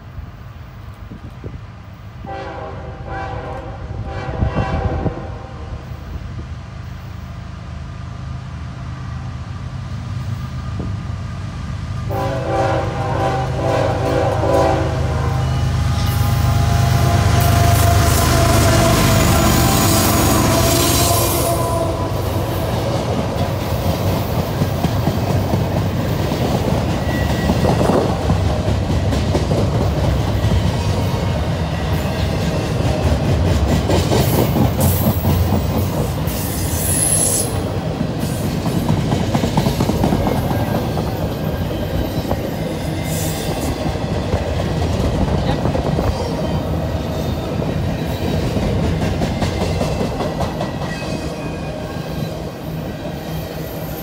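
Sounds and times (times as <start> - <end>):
diesel locomotive engine hum: 0.0 - 54.0
freight train rumbling past: 0.0 - 54.0
high wheel squeal: 27.0 - 28.0, 36.3 - 37.6, 40.5 - 43.8.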